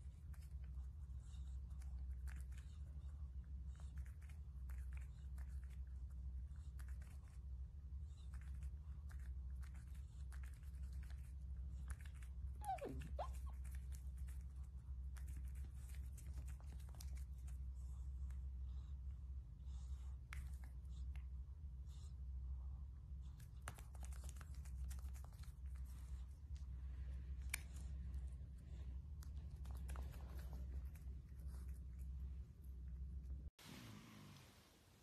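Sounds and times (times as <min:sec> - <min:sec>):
otter nibbling and licking paws: 0:00.0 - 0:33.6
steady low hum: 0:00.0 - 0:35.0
otter squeak: 0:12.6 - 0:13.5.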